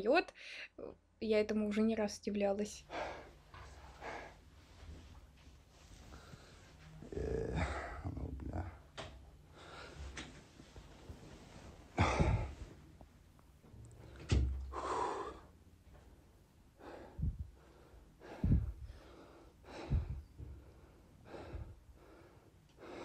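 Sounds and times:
air thumping the microphone: 0:12.0 - 0:12.8, 0:17.1 - 0:17.6, 0:18.3 - 0:19.0, 0:19.8 - 0:20.6
heavy breathing into microphone: 0:16.8 - 0:23.0.

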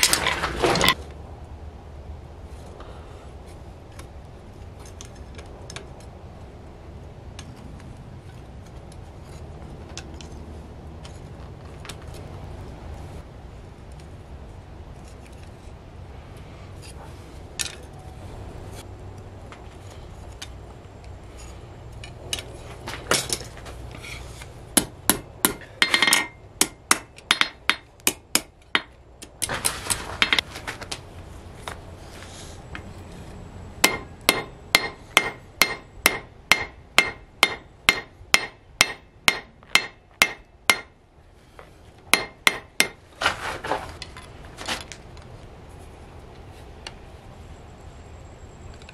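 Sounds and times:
hammer striking steel on anvil: 0:24.8 - 0:29.5, 0:33.8 - 0:41.0, 0:42.1 - 0:43.0.

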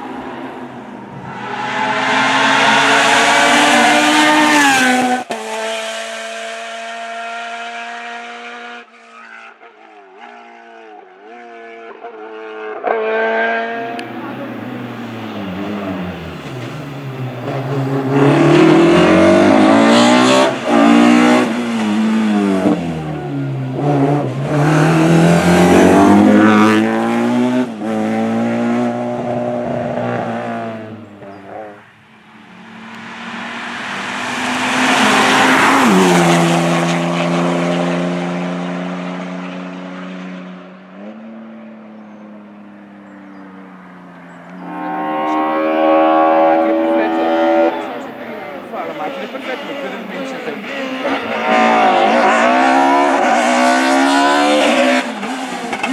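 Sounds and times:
race car engine revving: 0:01.0 - 0:08.9, 0:12.5 - 0:31.8, 0:32.4 - 0:41.5, 0:44.3 - 0:55.9
car passing by: 0:32.4 - 0:41.1.

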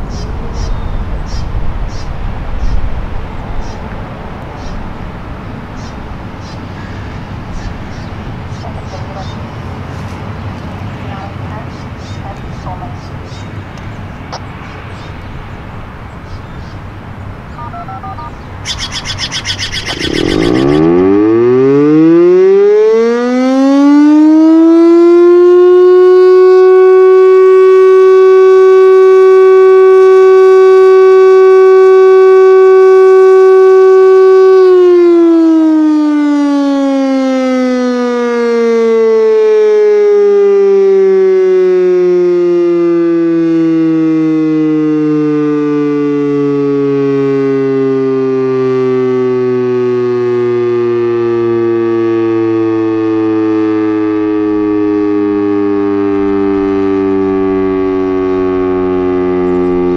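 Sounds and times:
electromechanical siren wailing: 0:17.6 - 0:59.9.

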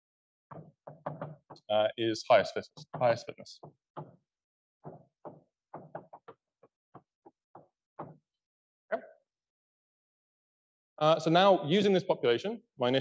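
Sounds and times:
chalk tapping on blackboard: 0:00.5 - 0:01.7, 0:02.5 - 0:08.3.

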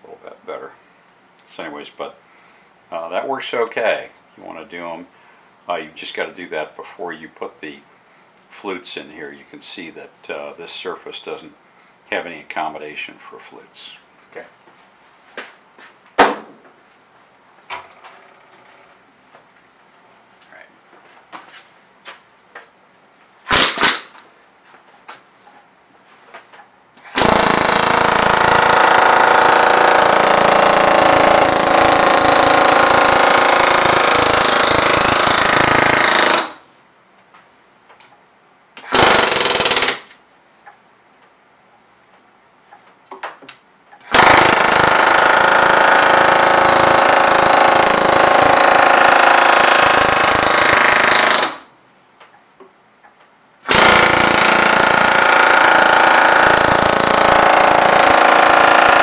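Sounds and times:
pneumatic air hammer on aluminium: 0:23.4 - 0:24.2, 0:27.0 - 0:36.7, 0:38.8 - 0:40.1, 0:44.0 - 0:51.7, 0:53.6 - 0:59.0.

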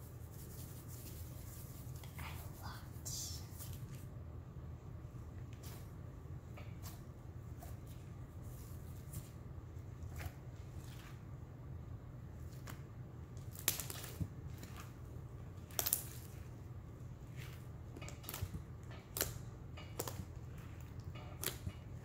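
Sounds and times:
steady low hum: 0:00.0 - 0:22.0
slime sticky clicks and crackles: 0:13.4 - 0:14.8, 0:15.6 - 0:16.3.

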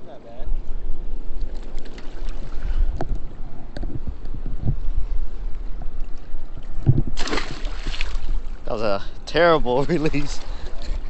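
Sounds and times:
wind buffeting microphone: 0:00.0 - 0:11.0
rushing water: 0:07.2 - 0:11.0.

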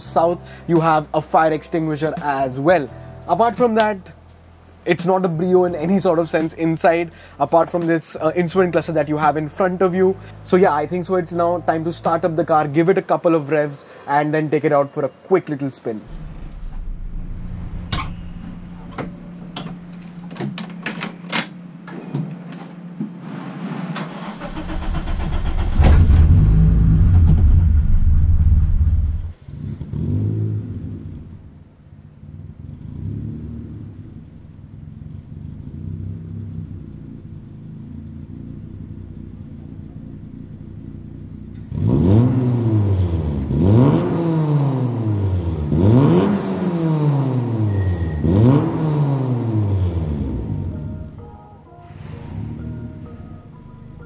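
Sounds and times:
car engine starting and revving: 0:16.0 - 0:20.3, 0:22.8 - 0:51.2, 0:51.9 - 0:54.0.

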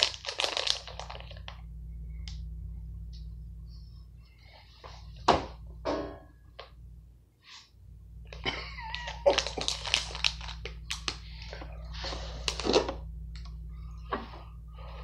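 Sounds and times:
plastic snack bag crinkling: 0:00.0 - 0:01.6, 0:08.8 - 0:13.0.

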